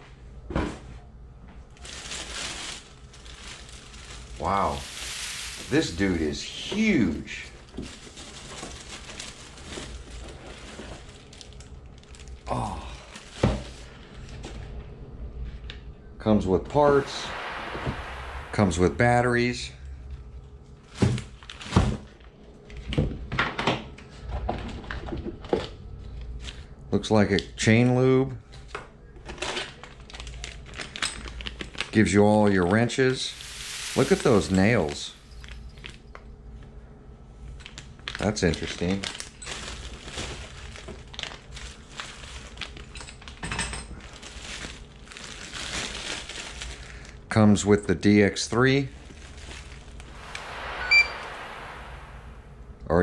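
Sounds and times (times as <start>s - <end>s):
plastic bags rustling: 1.7s - 12.4s, 29.9s - 31.8s, 33.2s - 35.6s, 38.5s - 43.4s, 44.0s - 47.2s, 48.9s - 50.4s.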